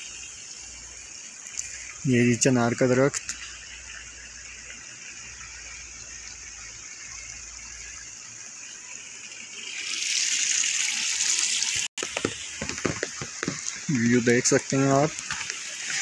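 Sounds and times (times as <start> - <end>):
rain falling: 9.3 - 16.0.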